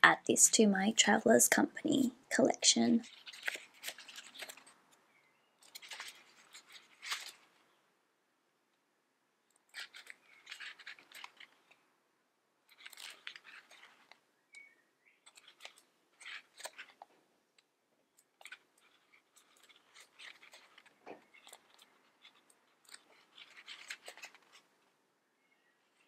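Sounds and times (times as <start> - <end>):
book pages flipping: 3.0 - 5.0, 5.6 - 7.7, 9.6 - 11.8, 12.7 - 14.2, 15.2 - 17.2, 18.2 - 24.9.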